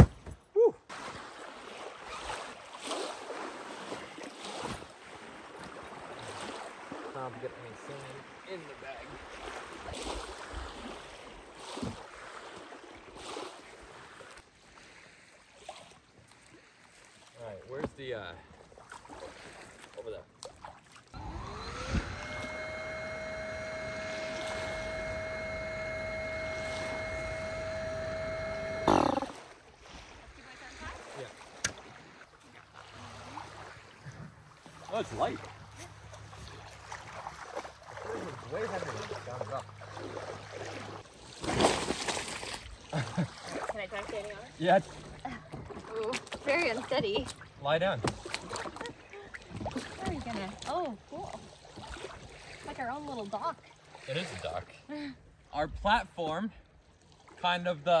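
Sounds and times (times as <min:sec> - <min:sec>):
water noise: 0:00.0 - 0:58.0
wind: 0:00.0 - 0:58.0
loud burst of noise: 0:21.2 - 0:29.4
electric air pump whining: 0:21.2 - 0:29.6.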